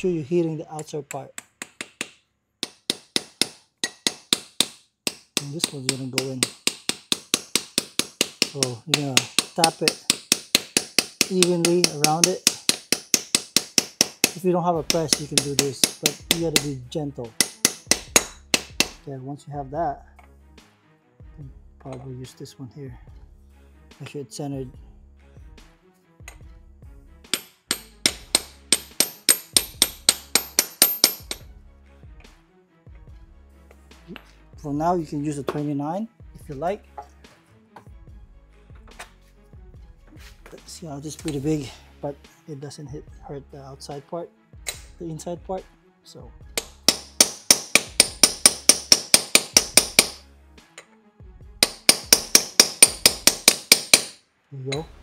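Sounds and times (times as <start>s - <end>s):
hammer tapping metal socket: 0.8s - 16.7s, 27.3s - 31.4s, 46.6s - 50.2s, 51.6s - 54.8s.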